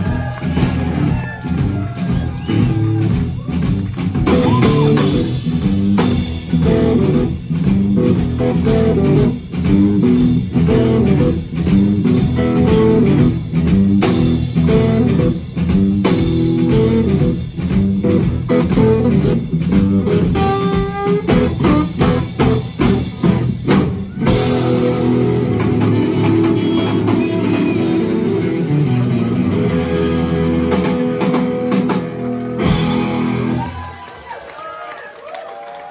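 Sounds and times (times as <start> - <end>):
blues rock band playing live: 0.0 - 34.2.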